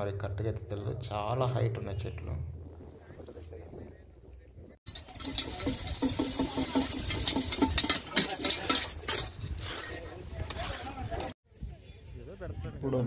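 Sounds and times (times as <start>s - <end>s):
steel pots and utensils clattering: 4.9s - 11.2s.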